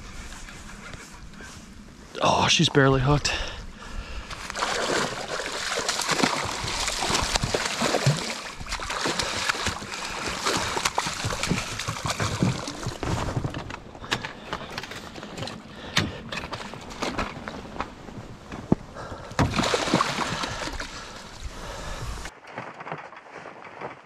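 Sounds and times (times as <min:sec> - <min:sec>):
fish thrashing in water: 0:04.3 - 0:15.6, 0:19.4 - 0:21.9.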